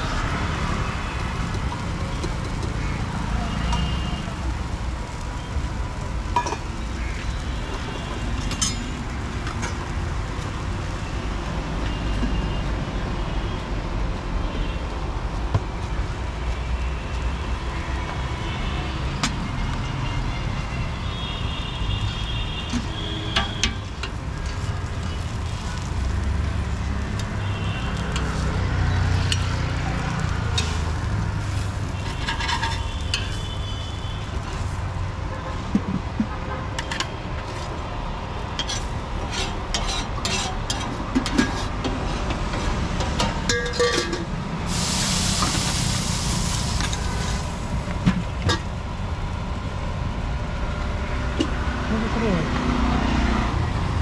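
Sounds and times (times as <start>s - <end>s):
road traffic rumble: 0.0s - 54.0s
food sizzling on a griddle: 0.1s - 12.1s, 21.6s - 35.0s, 44.6s - 48.0s
steel utensils and plates clinking: 8.4s - 9.0s, 30.5s - 30.9s, 32.0s - 33.5s, 38.6s - 44.4s
metal spatula scraping and tapping: 30.5s - 30.9s, 32.0s - 33.6s, 38.6s - 44.3s.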